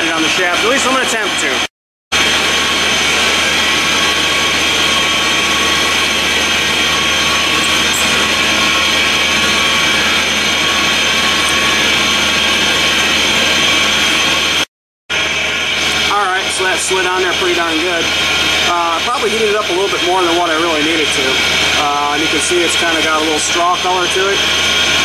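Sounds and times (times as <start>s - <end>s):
air compressor running: 0.0s - 25.0s.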